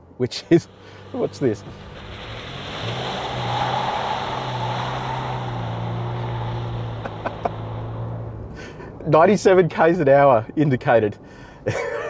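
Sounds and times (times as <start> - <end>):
tyre and road noise: 0.3 - 10.2
diesel engine drone: 0.4 - 9.1.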